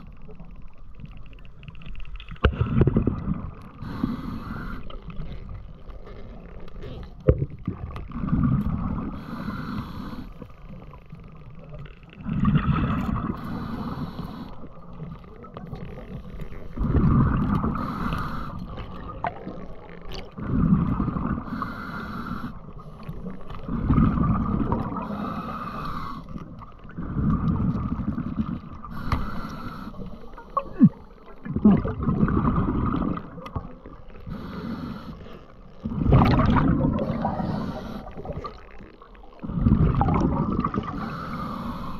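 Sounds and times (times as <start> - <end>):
exhaled bubbles gurgling: 0.0 - 41.9
diver breathing through regulator: 3.8 - 5.2, 9.0 - 10.7, 12.6 - 15.0, 16.8 - 19.0, 21.2 - 23.9, 24.7 - 31.2, 34.1 - 35.6, 36.8 - 38.6, 40.8 - 41.9.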